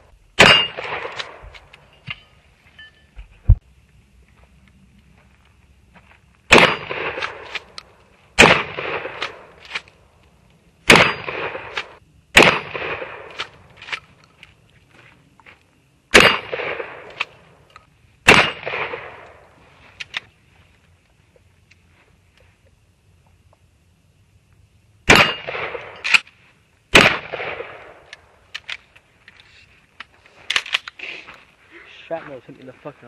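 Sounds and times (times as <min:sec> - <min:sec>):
shotgun shots: 0:00.4 - 0:01.4, 0:06.5 - 0:07.7, 0:08.4 - 0:09.5, 0:10.8 - 0:13.6, 0:16.1 - 0:17.3, 0:18.2 - 0:19.4, 0:25.1 - 0:26.2, 0:26.9 - 0:28.1.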